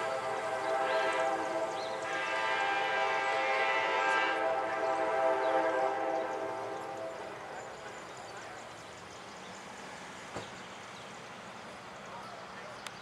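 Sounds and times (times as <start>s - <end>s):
locomotive air horn chord: 0.0s - 7.4s.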